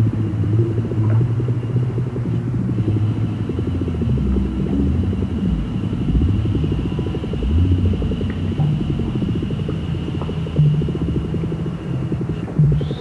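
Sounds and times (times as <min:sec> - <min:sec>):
pulsing flutter: 0:00.0 - 0:13.0
synthesizer drone: 0:00.0 - 0:13.0.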